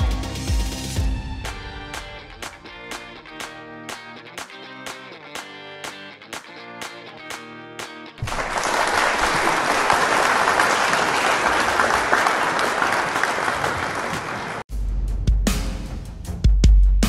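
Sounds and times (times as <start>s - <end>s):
strummed guitar music: 1.9s - 8.2s
audience applauding: 8.2s - 14.7s.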